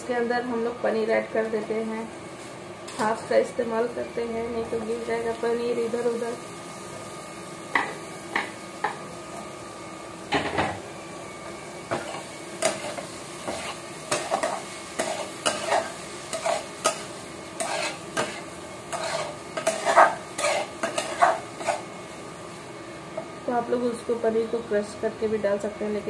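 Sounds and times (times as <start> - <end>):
light sizzle: 0.0 - 26.0
spatula scraping steel pan: 17.6 - 21.8.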